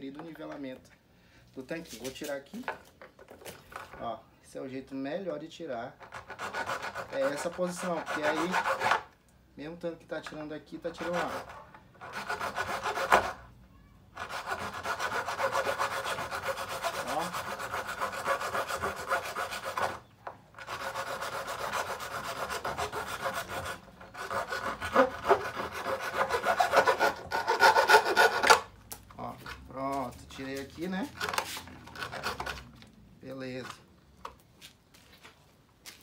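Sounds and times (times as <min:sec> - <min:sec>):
hacksaw sawing through plastic: 0:06.0 - 0:09.1, 0:10.9 - 0:13.4, 0:14.2 - 0:20.0, 0:20.6 - 0:28.7, 0:31.2 - 0:32.6.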